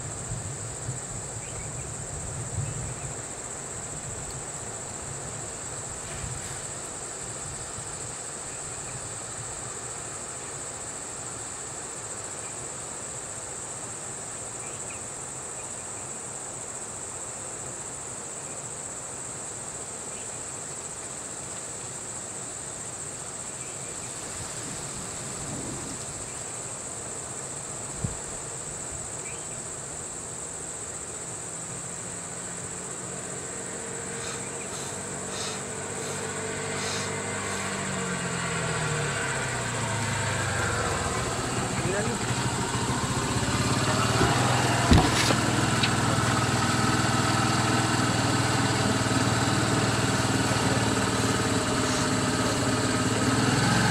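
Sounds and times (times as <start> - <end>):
vehicle engine hum: 0.0 - 14.8, 20.8 - 53.9
high-pitched insect drone: 22.1 - 53.6.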